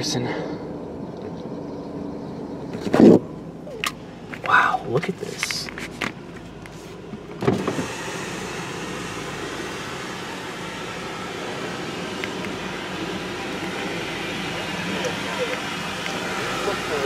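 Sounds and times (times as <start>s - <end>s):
car power window lowering: 7.2s - 8.6s
car wash rushing: 7.4s - 17.0s.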